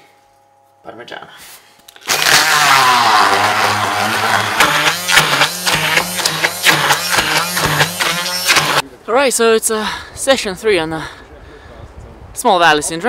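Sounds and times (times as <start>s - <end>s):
immersion blender motor hum: 2.0s - 8.8s.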